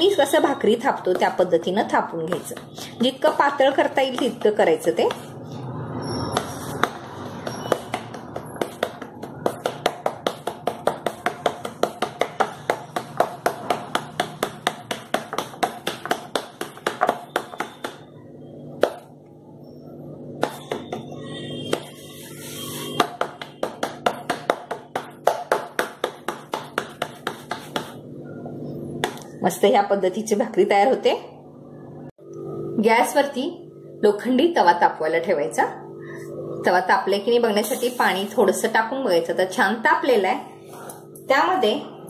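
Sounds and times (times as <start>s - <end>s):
hand slapping dough on board: 4.0s - 5.3s, 6.4s - 7.0s, 7.7s - 18.1s, 18.8s - 19.1s, 20.4s - 21.1s, 22.9s - 28.0s, 29.0s - 29.3s.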